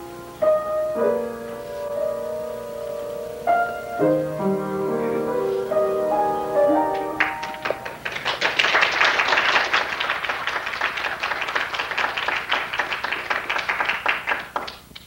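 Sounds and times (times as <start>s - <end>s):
crowd applauding: 6.9s - 15.0s.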